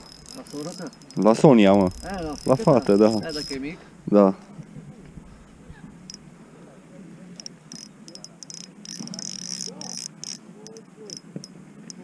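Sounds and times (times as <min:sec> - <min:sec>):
spinning reel clicking: 0:00.0 - 0:03.6, 0:07.4 - 0:12.0.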